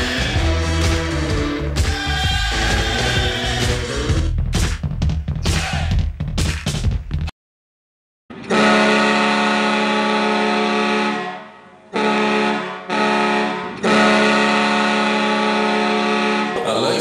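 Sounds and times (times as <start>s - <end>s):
goal horn blasts: 8.5s - 16.8s.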